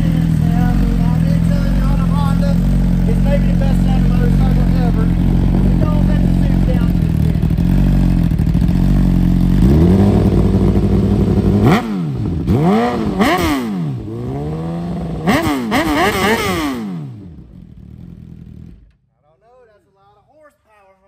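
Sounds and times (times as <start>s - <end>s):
motorcycle engine idling and revving: 0.0s - 19.0s.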